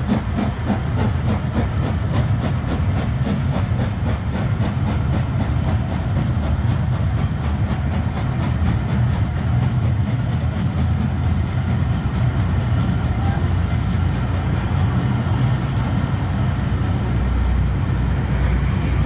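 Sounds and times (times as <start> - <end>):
train coaches rumbling past: 0.0 - 19.0
wheels clicking on track: 0.0 - 19.0.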